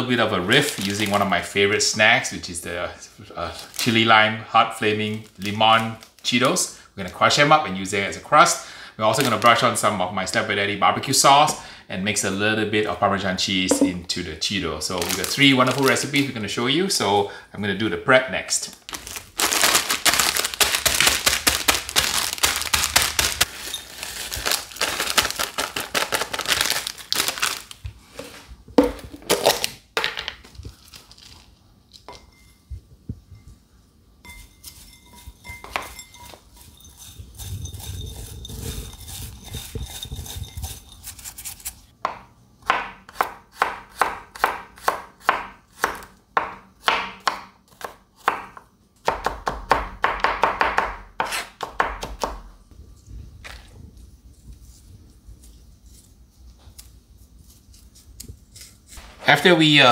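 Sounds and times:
plastic snack bag crinkling: 0:00.5 - 0:01.5, 0:03.5 - 0:04.1, 0:04.8 - 0:06.5, 0:09.1 - 0:09.8, 0:14.9 - 0:16.3, 0:18.6 - 0:27.9, 0:30.7 - 0:31.6.

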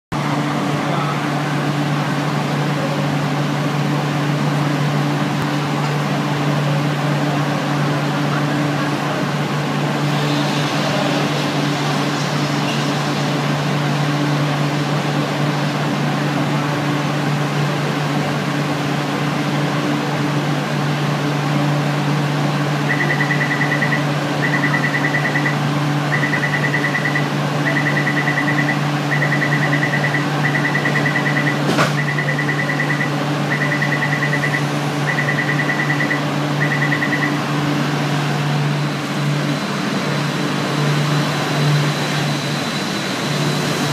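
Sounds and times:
traffic noise: 0:00.1 - 0:43.9
low machine hum: 0:00.2 - 0:43.9
high electronic beeper: 0:22.9 - 0:37.5.

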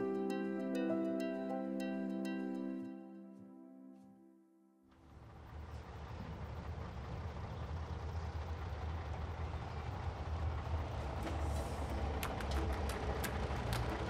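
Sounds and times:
truck engine rumbling: 0:04.9 - 0:14.0.

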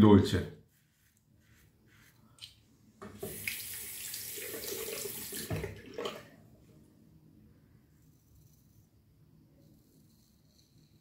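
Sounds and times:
tap water running into sink: 0:03.0 - 0:06.3.

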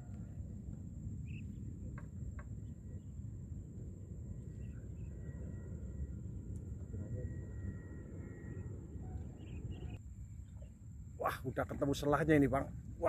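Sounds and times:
low outdoor rumble: 0:00.0 - 0:13.0
high-pitched whine: 0:02.6 - 0:10.0.

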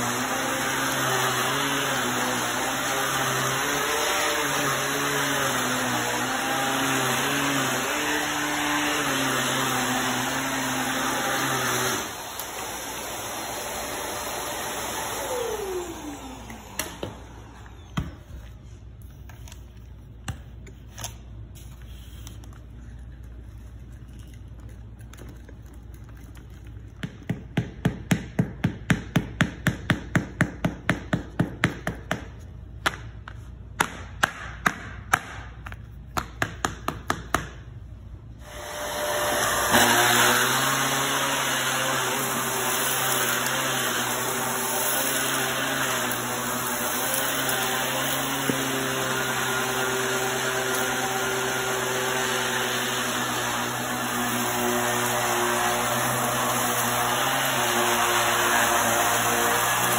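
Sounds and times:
vacuum cleaner running: 0:00.0 - 0:18.7, 0:38.4 - 0:59.9
vacuum motor winding down whine: 0:10.2 - 0:18.2.

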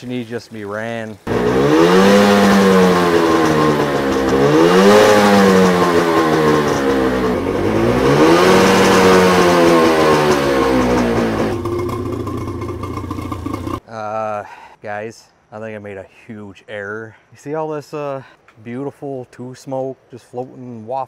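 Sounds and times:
man talking: 0:00.0 - 0:01.3, 0:13.8 - 0:21.0
outboard engine revving: 0:01.2 - 0:13.8.

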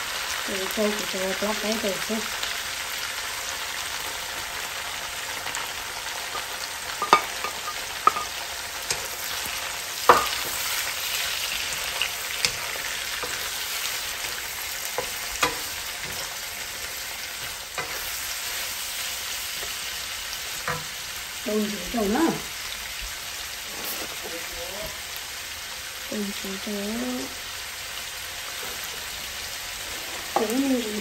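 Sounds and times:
food sizzling in a pan: 0:00.0 - 0:31.0
spatula clinking against pan: 0:07.0 - 0:09.1.

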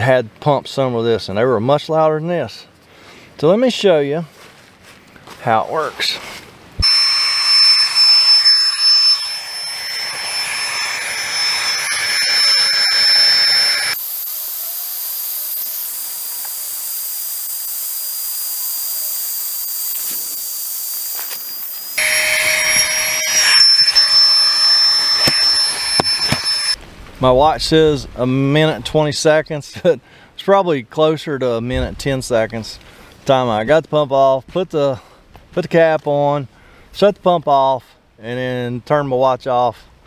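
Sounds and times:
air pump whining: 0:06.8 - 0:14.4, 0:21.1 - 0:26.8.

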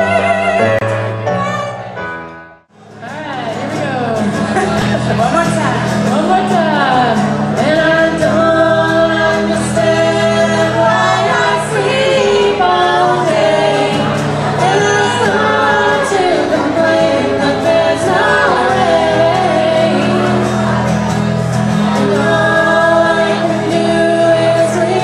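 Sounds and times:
acoustic guitars: 0:00.0 - 0:25.0
women singing together: 0:06.1 - 0:21.0, 0:21.7 - 0:25.0.

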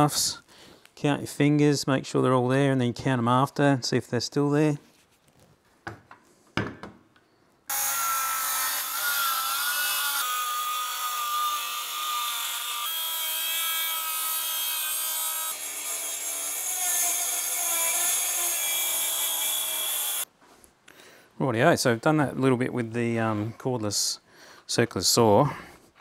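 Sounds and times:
circular saw cutting plywood: 0:07.7 - 0:20.3.

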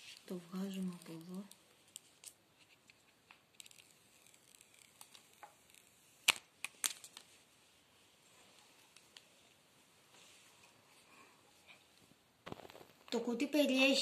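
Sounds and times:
packaging rustling: 0:00.0 - 0:07.3
sharp packaging clicks: 0:00.8 - 0:07.3.

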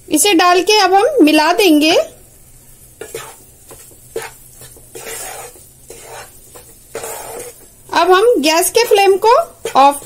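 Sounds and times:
wooden spatula scraping a pan: 0:02.5 - 0:10.0.

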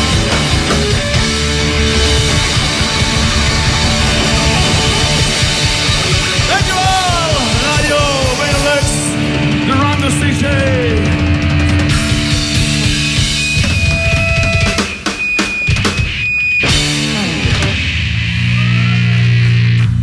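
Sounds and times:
electric guitars: 0:00.0 - 0:15.0
drums and cymbals: 0:00.0 - 0:20.0.

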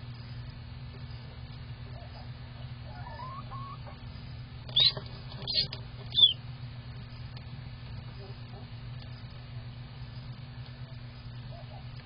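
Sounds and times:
steady low hum: 0:00.0 - 0:12.0
duckling peeping: 0:01.9 - 0:04.0, 0:04.6 - 0:06.4.

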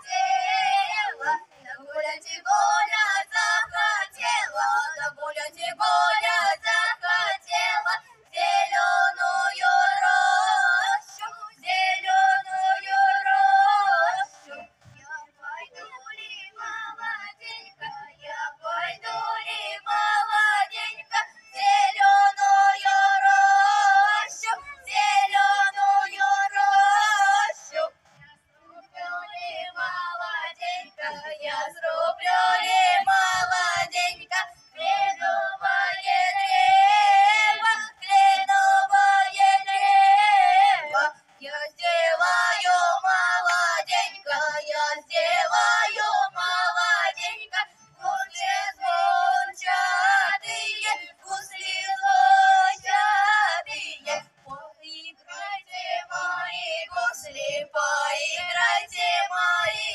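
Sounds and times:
female voices singing into microphones: 0:00.0 - 0:59.9.

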